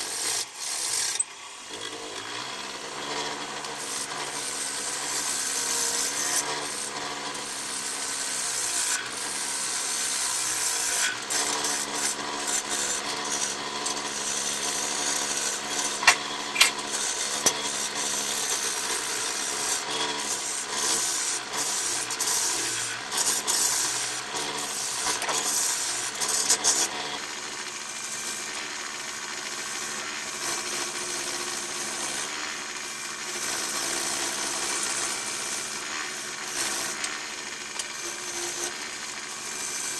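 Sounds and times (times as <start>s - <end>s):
gouge cutting wood shavings: 0.0s - 1.2s, 1.8s - 27.1s
wood lathe humming: 0.0s - 39.9s.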